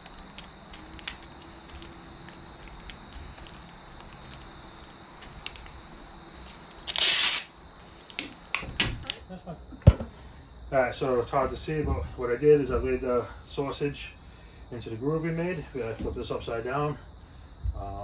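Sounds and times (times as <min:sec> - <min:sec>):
tape crackles and clicks: 0:00.0 - 0:09.2
tape pulled off roll: 0:06.7 - 0:07.5.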